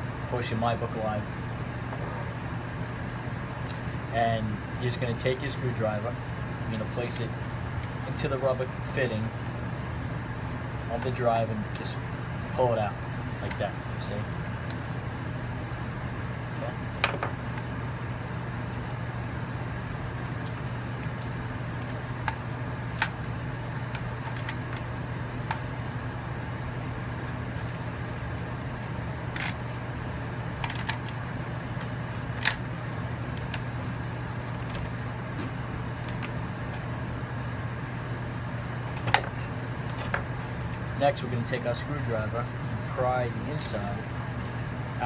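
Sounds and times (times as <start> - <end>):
low room hum: 0.0 - 45.0.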